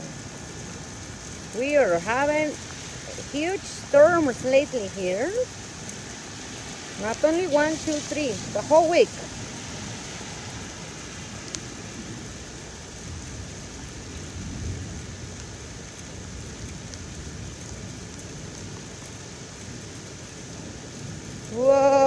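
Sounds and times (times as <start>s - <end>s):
heavy rain: 0.0s - 22.0s.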